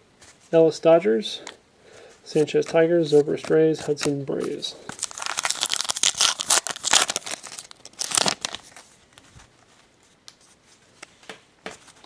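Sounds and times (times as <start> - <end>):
cards rustling and clicking: 2.3 - 9.4
foil wrapper tearing and crinkling: 4.9 - 8.8.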